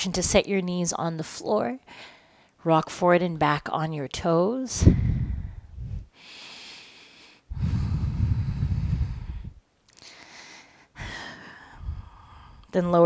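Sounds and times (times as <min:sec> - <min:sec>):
woman breathing: 0:01.8 - 0:02.6, 0:04.8 - 0:12.7.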